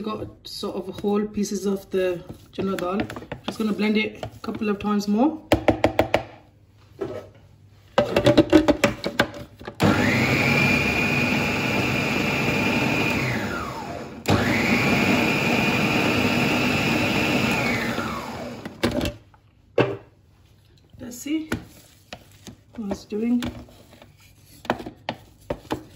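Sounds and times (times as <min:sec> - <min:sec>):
food processor motor whining: 0:09.8 - 0:18.9.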